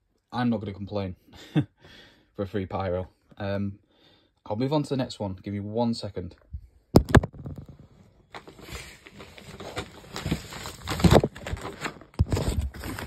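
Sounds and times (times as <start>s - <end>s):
cardboard boxes rustling: 8.3s - 13.0s.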